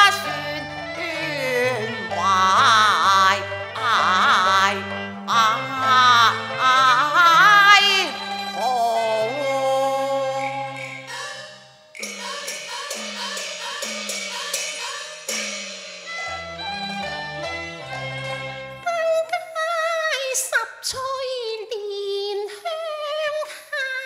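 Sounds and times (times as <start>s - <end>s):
opera ensemble music: 0.0s - 21.0s
sliding wavering melody line: 7.6s - 18.9s
sharp percussion strokes: 8.1s - 18.9s.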